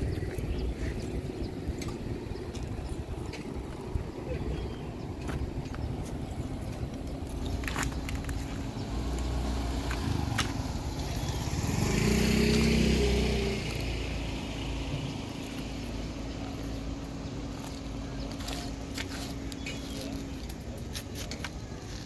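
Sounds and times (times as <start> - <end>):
traffic hum: 0.0 - 22.0
motorcycle passing: 5.8 - 18.7.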